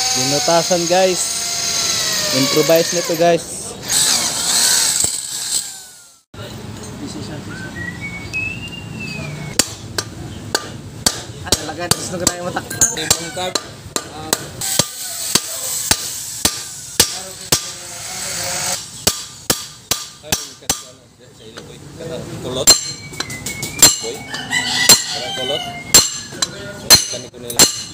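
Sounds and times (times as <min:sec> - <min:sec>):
hammer striking steel punch: 0:09.6 - 0:17.8, 0:19.0 - 0:21.0, 0:22.6 - 0:24.1, 0:25.9 - 0:27.9.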